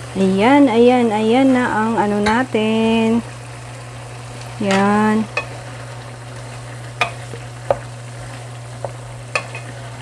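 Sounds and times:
low sizzle: 0.0 - 10.0
steady low hum: 0.0 - 10.0
wooden spoon knocking on pan: 7.0 - 7.9, 8.8 - 9.7.

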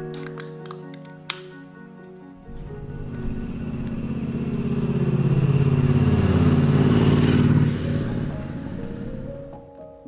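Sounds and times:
vehicle engine rumbling: 2.5 - 9.5.

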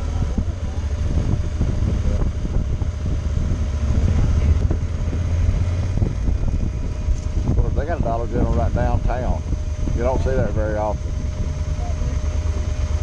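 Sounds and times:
motorcycle engine rumble: 0.0 - 13.0
wind buffeting microphone: 0.0 - 13.0.

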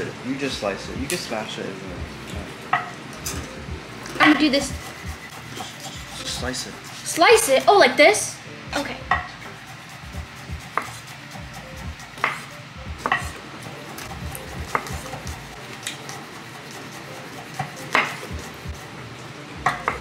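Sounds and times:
knife knocking on wooden board: 9.1 - 9.4, 11.8 - 13.4, 14.2 - 15.4, 19.6 - 20.0.

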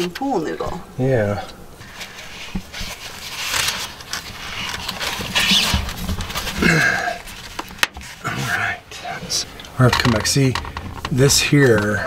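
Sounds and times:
person grunting: 6.6 - 7.2
person breathing hard: 6.6 - 7.3.

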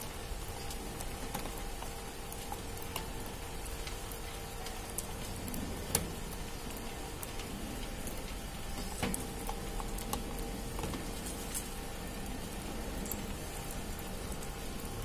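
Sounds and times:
metallic clicks from conveyor belt: 0.0 - 11.8
conveyor motor hum: 0.0 - 15.0.

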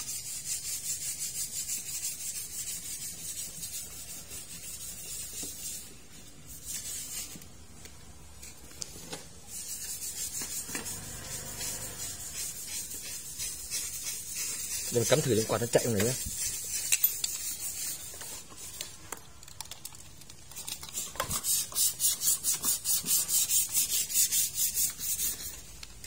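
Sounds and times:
fingers rubbing and scratching sleeve: 0.0 - 5.9, 9.5 - 18.8.

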